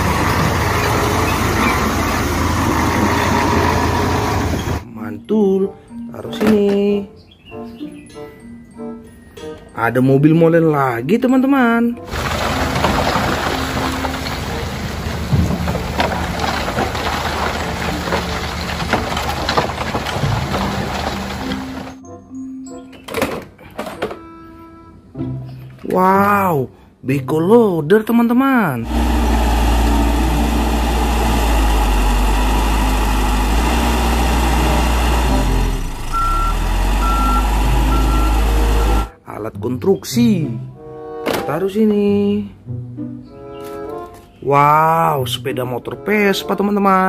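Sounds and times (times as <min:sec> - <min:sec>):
truck engine running: 0:00.0 - 0:04.8, 0:12.1 - 0:22.0, 0:28.8 - 0:39.1
concrete clumps slapping: 0:12.1 - 0:21.9
wet concrete pouring and splashing: 0:12.1 - 0:22.0
reversing alarm beeping: 0:36.1 - 0:39.1.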